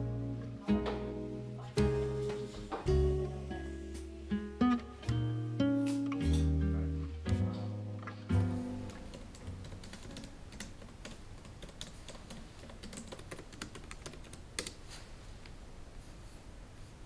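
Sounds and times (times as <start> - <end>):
laptop keyboard typing: 8.9 - 14.8.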